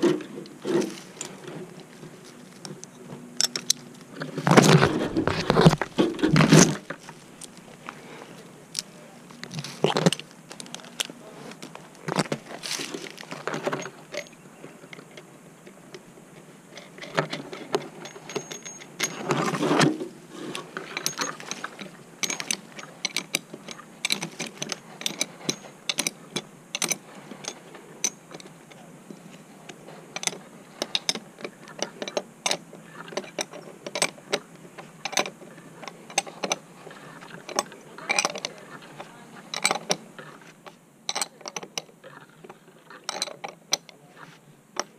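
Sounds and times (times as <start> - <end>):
carabiners clicking and clinking: 0.0 - 7.9, 8.7 - 15.2, 16.7 - 28.9, 29.6 - 44.0.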